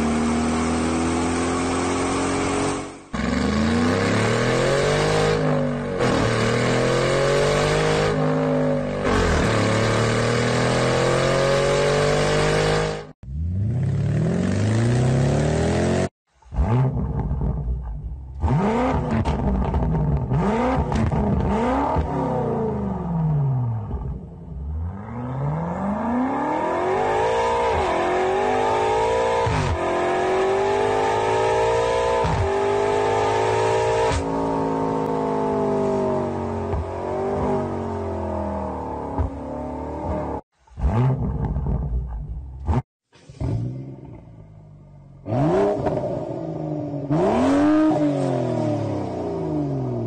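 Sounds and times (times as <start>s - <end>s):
car engine revving: 0.0s - 50.0s
hatchback engine revving: 24.6s - 50.0s.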